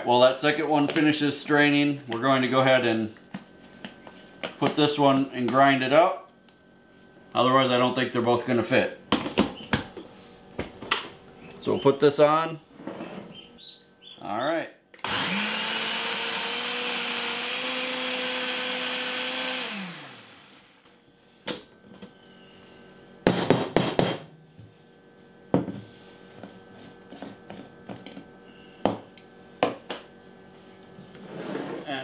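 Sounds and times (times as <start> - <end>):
blender motor running: 15.0 - 20.9.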